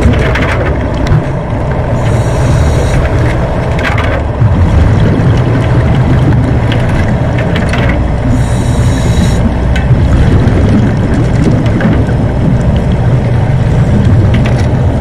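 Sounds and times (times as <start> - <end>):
exhaled air bubbling underwater: 0.0 - 15.0
regulator inhalation hiss: 2.0 - 3.0, 8.3 - 9.4.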